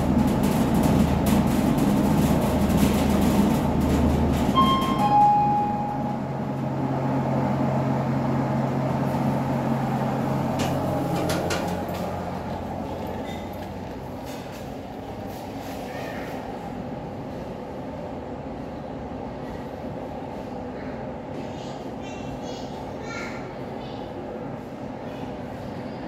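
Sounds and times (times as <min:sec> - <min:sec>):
lift running with low rumble: 0:00.0 - 0:26.0
two-note arrival chime: 0:04.6 - 0:06.4.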